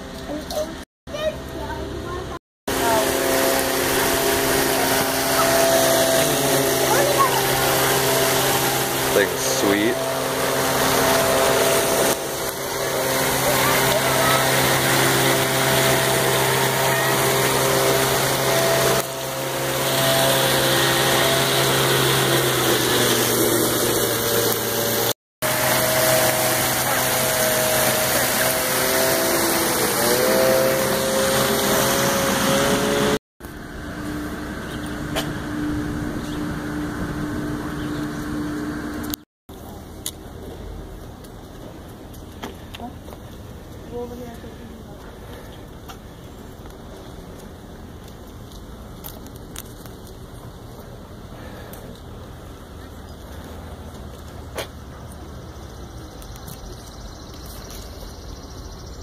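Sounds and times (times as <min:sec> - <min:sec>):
mechanical hum: 0:00.0 - 0:59.0
fountain water splashing: 0:25.7 - 0:29.3.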